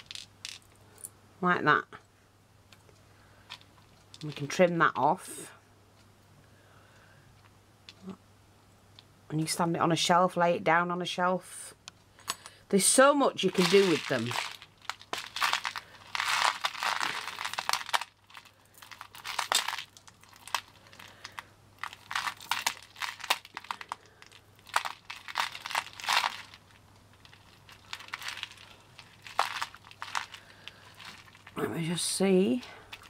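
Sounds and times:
pearl beads clicking and rattling: 0.0 - 1.1, 3.5 - 4.5, 13.4 - 33.0.

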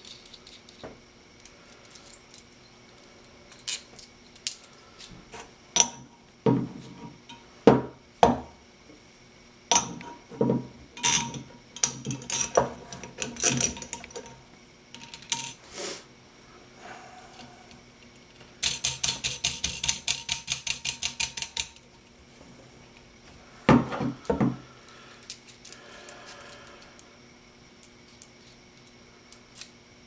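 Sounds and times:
bolts and nuts clinking: 9.7 - 15.6, 18.4 - 21.8.

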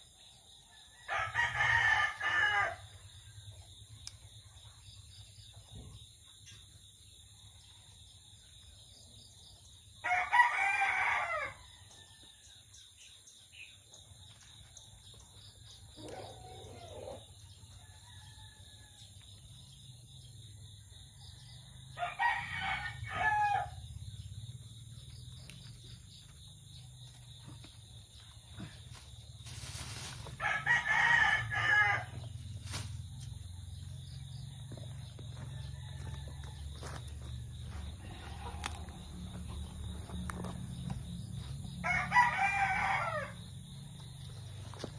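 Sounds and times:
rooster crowing: 0.9 - 2.9, 10.0 - 12.2, 21.9 - 23.9, 30.4 - 32.3, 34.5 - 39.6, 41.7 - 43.6
high insect trill: 12.4 - 44.9.

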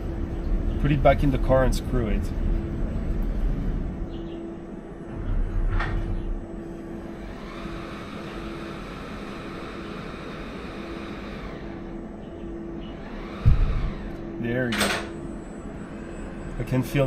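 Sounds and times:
low machinery rumble: 0.0 - 17.0
electric motor whine: 6.4 - 17.0.

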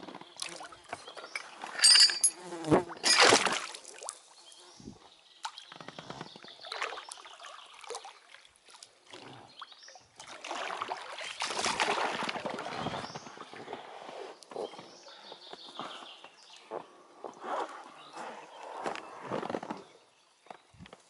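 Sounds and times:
river water splashing around boat: 3.0 - 4.2, 6.6 - 13.5.

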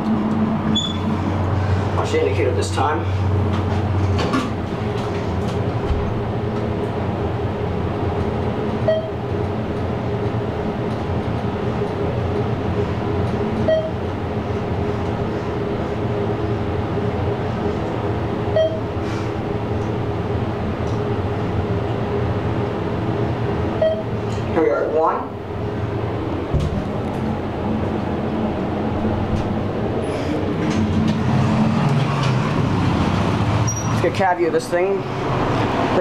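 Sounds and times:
elevator humming: 0.0 - 36.0
elevator floor beep: 0.7 - 1.1, 8.8 - 9.3, 13.6 - 14.0, 18.5 - 19.0, 23.8 - 24.2.

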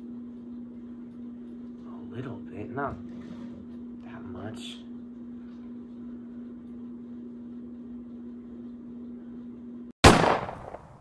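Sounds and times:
gunshot: 10.0 - 11.0.

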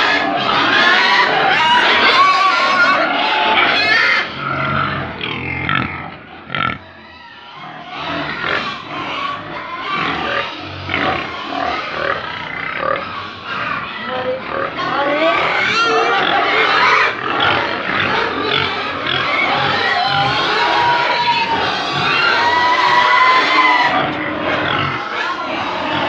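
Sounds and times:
pigs squealing and grunting: 0.0 - 26.0.

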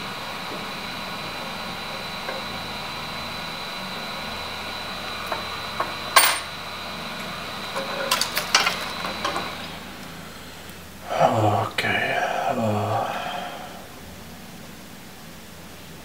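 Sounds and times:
steady hum with high whine: 0.0 - 16.0
metal tools clicking and clinking: 6.1 - 6.5, 7.8 - 9.6.

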